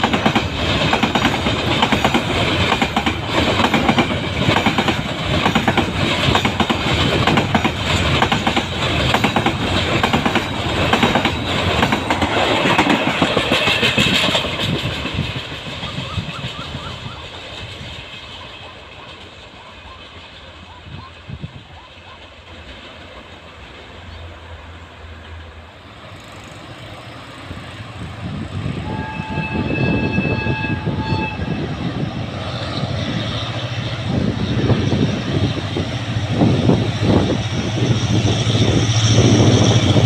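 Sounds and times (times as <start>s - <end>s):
train wheels clattering over rail joints: 0.0s - 19.6s.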